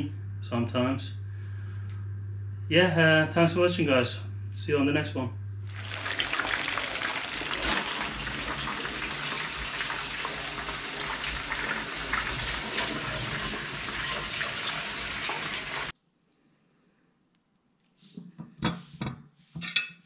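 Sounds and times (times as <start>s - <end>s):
fish frying in hot oil: 5.7s - 15.9s.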